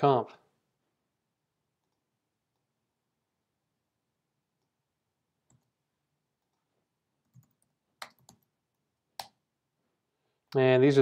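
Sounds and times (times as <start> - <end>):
computer keyboard keystrokes: 7.3 - 8.5.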